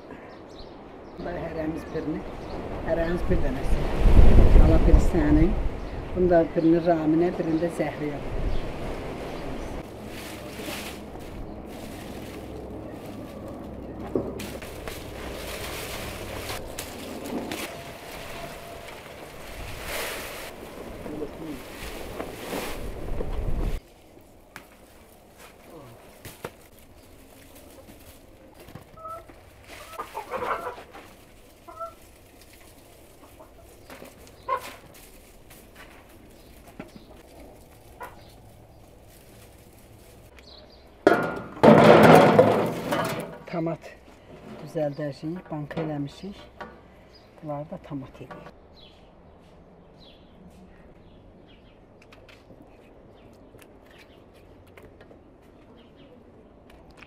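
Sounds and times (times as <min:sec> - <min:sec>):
dry plant stalks rustling: 0:06.8 - 0:46.6
hens clucking: 0:27.6 - 0:32.4, 0:33.0 - 0:34.9, 0:36.9 - 0:38.8.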